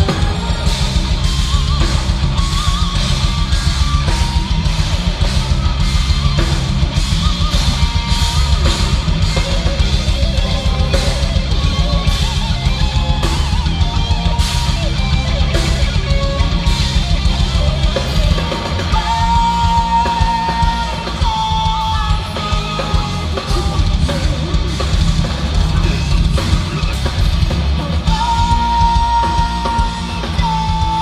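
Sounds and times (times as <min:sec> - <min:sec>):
metal band playing live: 0:00.0 - 0:31.0.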